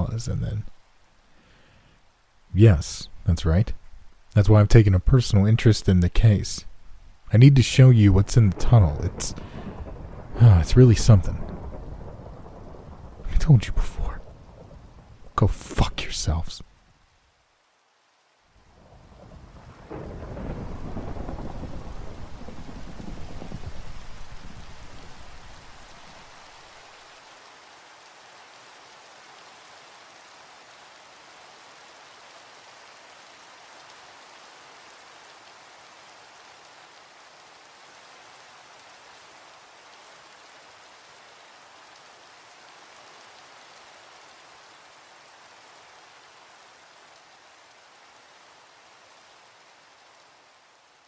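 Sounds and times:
steady rain: 0:00.0 - 0:51.0
thunder rolling: 0:08.1 - 0:16.3, 0:19.2 - 0:26.1.

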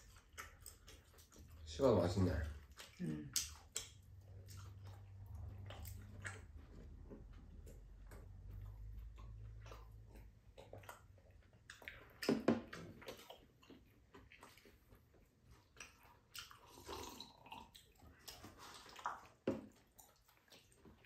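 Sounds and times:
person chewing: 0:00.0 - 0:21.0
slurping a drink: 0:16.6 - 0:17.7.

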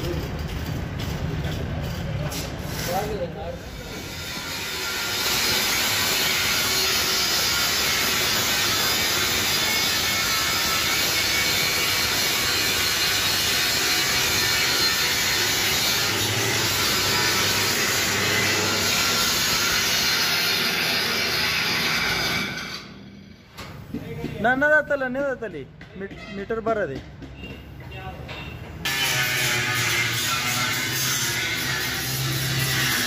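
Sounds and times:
angle grinder grinding steel: 0:02.4 - 0:23.2, 0:28.9 - 0:33.0.

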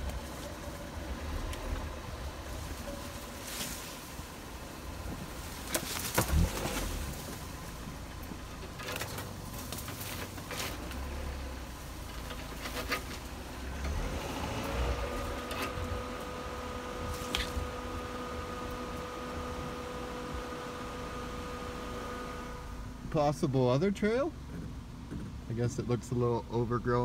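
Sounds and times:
car engine and road rumble: 0:00.0 - 0:27.0
suspension knocking over bumps: 0:24.3 - 0:25.6.

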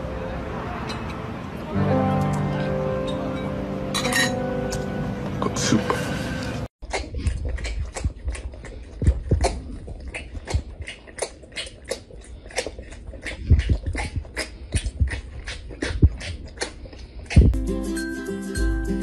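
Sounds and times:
tiger sucking from bottle: 0:06.9 - 0:17.6.

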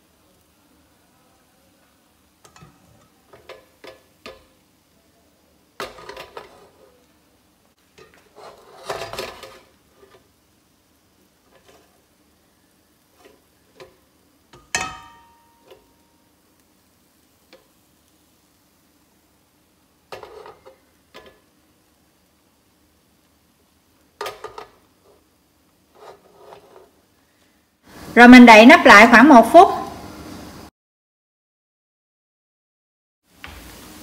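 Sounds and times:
ladle clinking on metal cookware: 0:02.4 - 0:04.6, 0:13.2 - 0:15.9.

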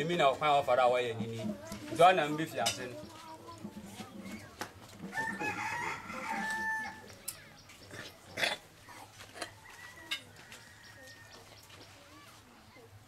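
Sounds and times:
rooster crowing: 0:05.1 - 0:07.1, 0:09.6 - 0:11.5.

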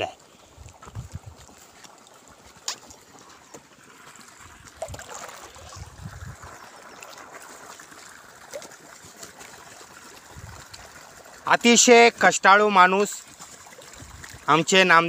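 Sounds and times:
water trickling in furrow: 0:00.0 - 0:15.0.

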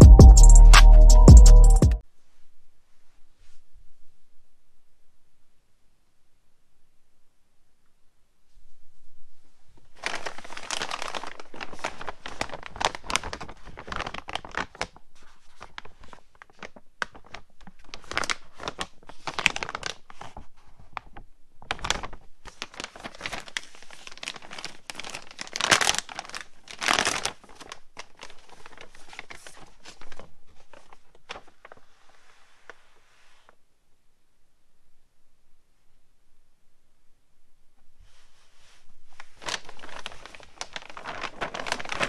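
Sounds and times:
plastic bag crinkling: 0:09.9 - 0:32.3, 0:39.1 - 0:42.0
plastic bag ripping: 0:10.0 - 0:15.0, 0:16.6 - 0:20.2, 0:21.7 - 0:30.2, 0:39.2 - 0:42.0.

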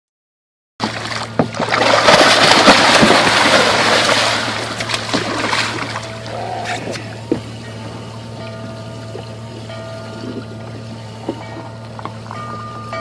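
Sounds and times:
sharks splashing water: 0:00.8 - 0:07.6
steady low hum: 0:00.8 - 0:13.0.

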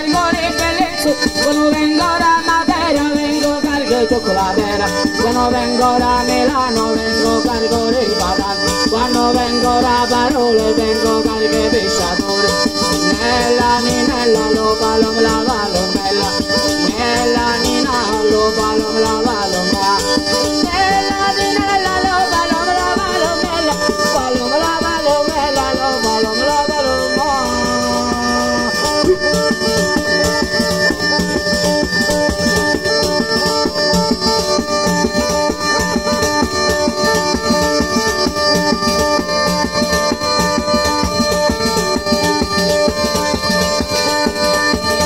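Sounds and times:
man singing: 0:00.0 - 0:29.2
bagpipe folk dance tune: 0:00.0 - 0:45.0
shaken hand percussion: 0:00.0 - 0:45.0.

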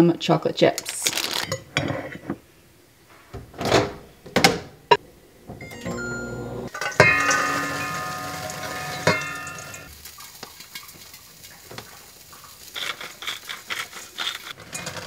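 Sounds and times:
metal bowl knocked on counter: 0:06.8 - 0:09.9.

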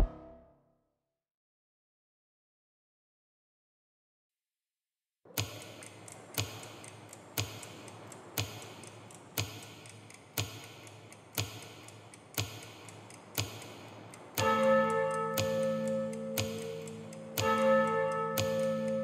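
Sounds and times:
grandfather clock ticking: 0:05.3 - 0:19.0.

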